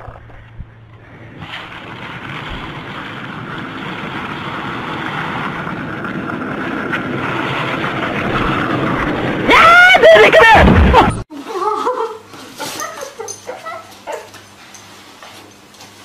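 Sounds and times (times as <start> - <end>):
skateboard wheels rolling on pavement: 0.0 - 10.4.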